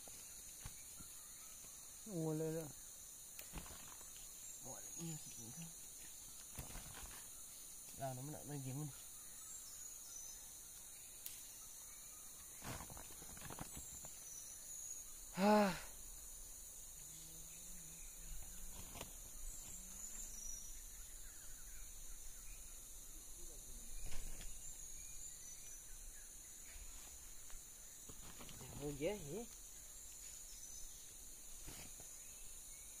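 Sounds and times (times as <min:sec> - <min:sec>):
high-pitched insect chorus: 0:00.0 - 0:33.0
faint rustles: 0:26.6 - 0:32.5.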